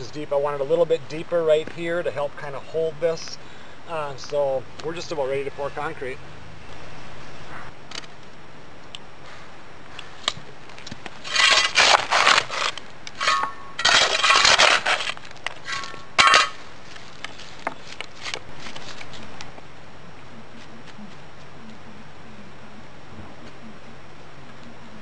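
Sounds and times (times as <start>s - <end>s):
shovel scraping through stony soil: 11.2s - 17.5s.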